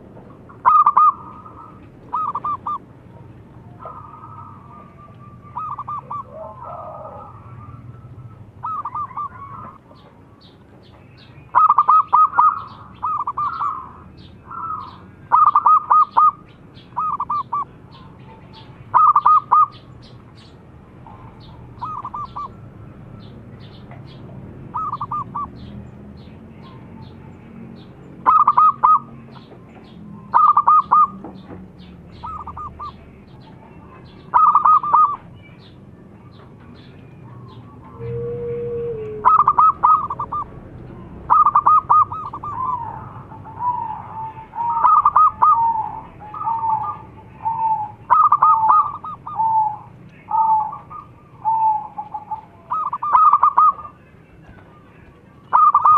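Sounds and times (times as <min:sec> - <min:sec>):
dove cooing: 0:00.0 - 0:10.1, 0:11.5 - 0:20.2, 0:21.0 - 0:22.7, 0:24.7 - 0:27.2, 0:28.2 - 0:31.4, 0:32.1 - 0:33.0, 0:33.8 - 0:35.3, 0:36.3 - 0:55.9.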